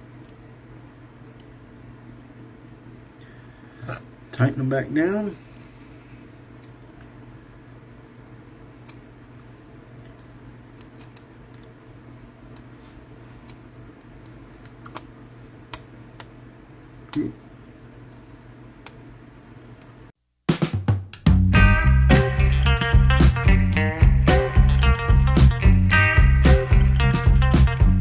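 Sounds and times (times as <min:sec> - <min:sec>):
steady low hum: 0:00.0 - 0:20.1.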